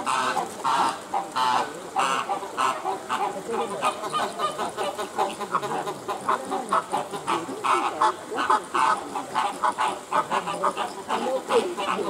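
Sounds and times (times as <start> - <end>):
flamingos honking and calling: 0.0 - 12.0.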